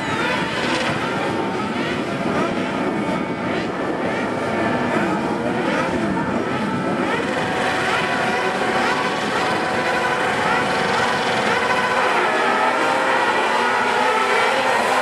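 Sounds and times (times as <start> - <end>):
buggy engines revving: 0.0 - 15.0.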